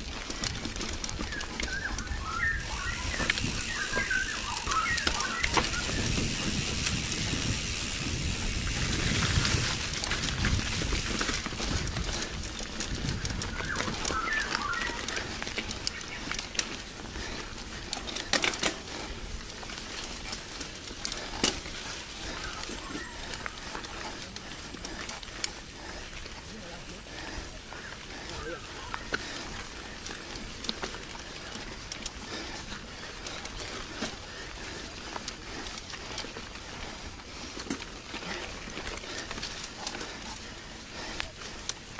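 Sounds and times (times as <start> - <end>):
bike rattles and knocks: 0.0 - 25.9, 28.8 - 41.9
bike tyres rumbling on dirt: 0.0 - 41.9
faint birds chirping: 1.1 - 6.5, 13.0 - 18.2, 21.1 - 35.5
wind on microphone: 1.9 - 4.2, 5.0 - 14.7.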